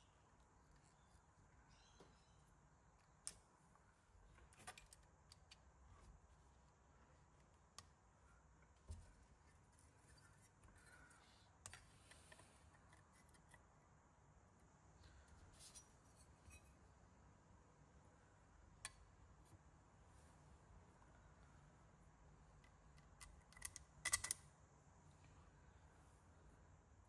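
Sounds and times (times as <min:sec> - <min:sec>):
small parts clicking and tapping: 0:04.3 - 0:05.7, 0:22.6 - 0:24.6.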